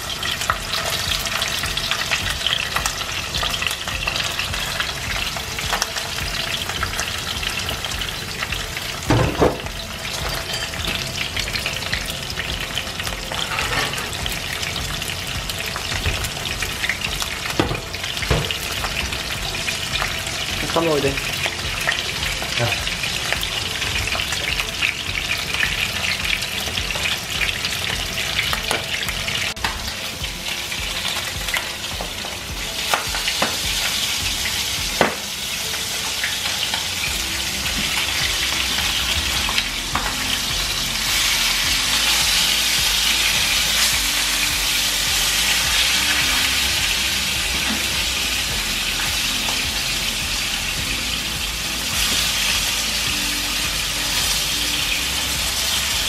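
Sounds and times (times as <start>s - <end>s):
fish sizzling in oil: 0.0s - 56.0s.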